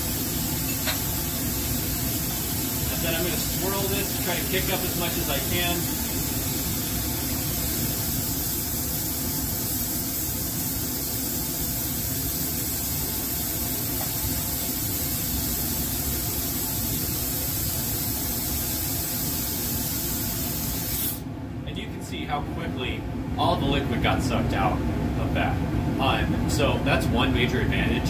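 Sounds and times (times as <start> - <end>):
vacuum line hissing: 0.0 - 21.3.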